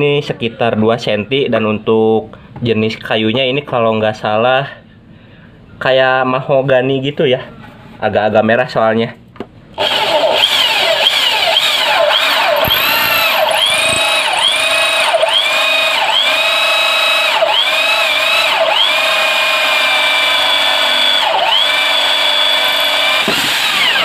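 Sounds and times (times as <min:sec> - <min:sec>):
drill motor whine cutting wood: 0:09.8 - 0:24.0.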